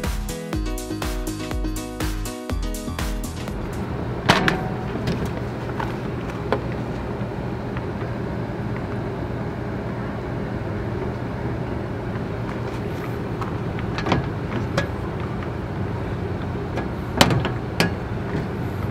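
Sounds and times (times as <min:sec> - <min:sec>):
steady low hum: 0:02.6 - 0:18.9.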